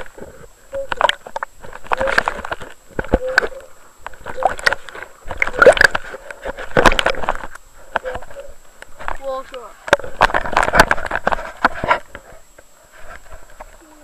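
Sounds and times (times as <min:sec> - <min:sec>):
water sloshing and gurgling: 0:00.0 - 0:12.4.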